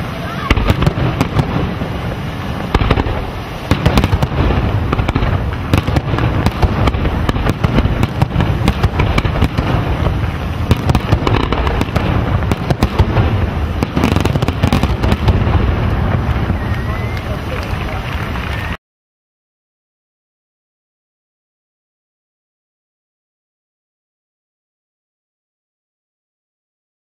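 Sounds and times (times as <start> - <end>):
fireworks bursting: 0.0 - 18.8.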